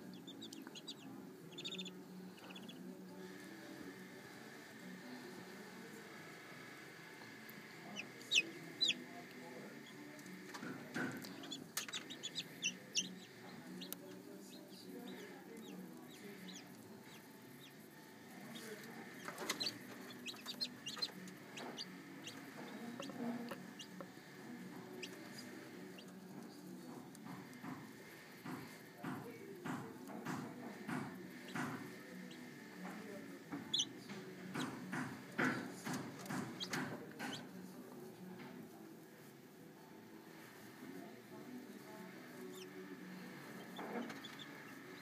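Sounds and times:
chicks peeping: 0:00.0 - 0:04.2, 0:07.8 - 0:26.2, 0:30.6 - 0:37.4, 0:42.4 - 0:45.0.

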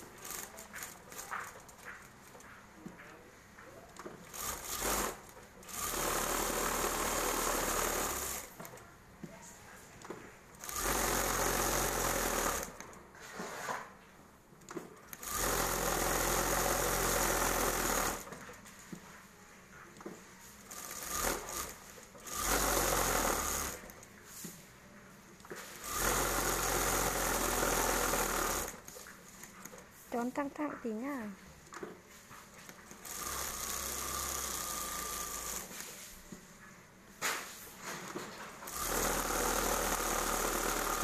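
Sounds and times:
sewing machine stitching: 0:00.0 - 0:02.6, 0:03.9 - 0:08.8, 0:10.0 - 0:13.8, 0:14.7 - 0:18.8, 0:20.6 - 0:24.1, 0:25.4 - 0:29.8, 0:32.8 - 0:36.1, 0:38.1 - 0:41.0.

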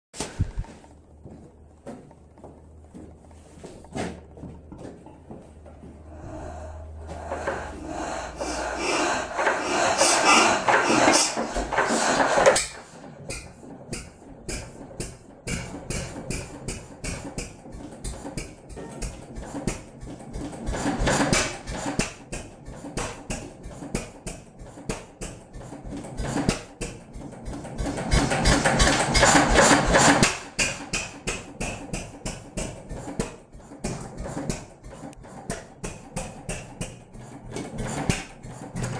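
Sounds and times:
stationary engine knocking: 0:06.0 - 0:38.9
loud rushing noise: 0:06.1 - 0:12.6.

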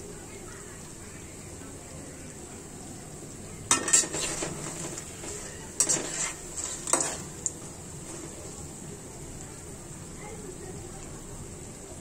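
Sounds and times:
oil sizzling: 0:00.0 - 0:12.0
utensil scraping in a pan: 0:03.6 - 0:09.2.

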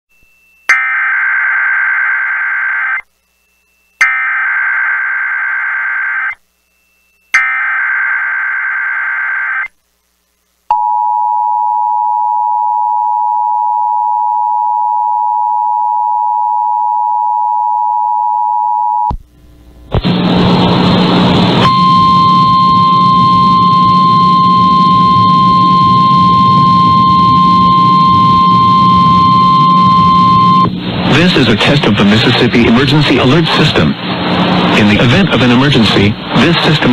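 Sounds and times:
digital data bursts: 0:04.0 - 0:06.4.

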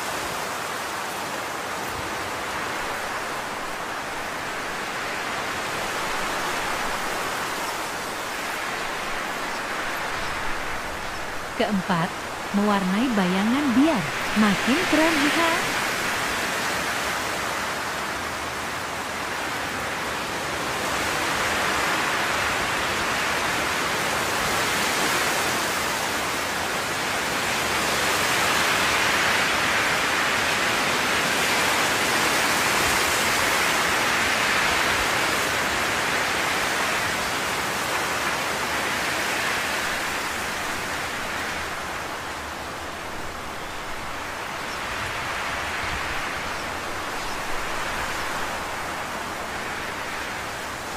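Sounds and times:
steady rushing hiss: 0:00.0 - 0:14.9, 0:32.8 - 0:50.9.

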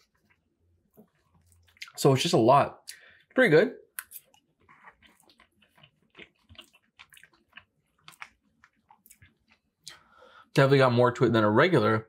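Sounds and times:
mouth chewing food: 0:03.9 - 0:10.0.

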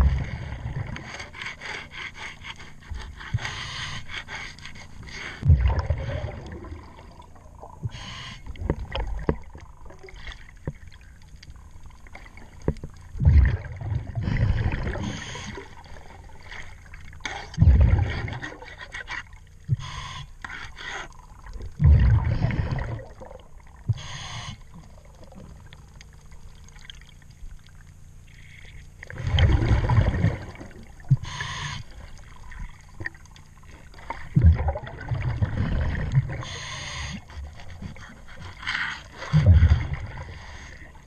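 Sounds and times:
exhaled bubbles rumbling underwater: 0:00.0 - 0:01.9, 0:04.8 - 0:41.0
regulator inhale hiss: 0:07.9 - 0:08.6, 0:19.7 - 0:21.1, 0:23.9 - 0:24.8, 0:31.2 - 0:32.2, 0:36.4 - 0:37.6.

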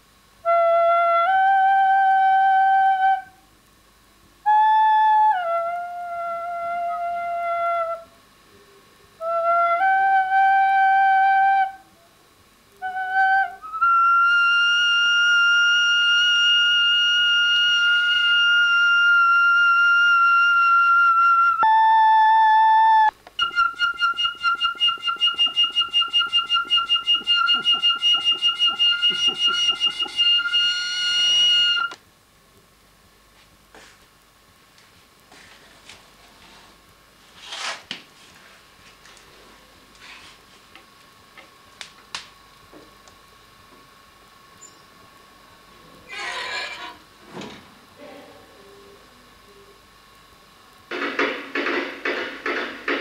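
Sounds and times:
flute-like wind instrument notes: 0:00.4 - 0:03.4, 0:04.5 - 0:08.1, 0:09.2 - 0:11.9, 0:12.8 - 0:32.0.

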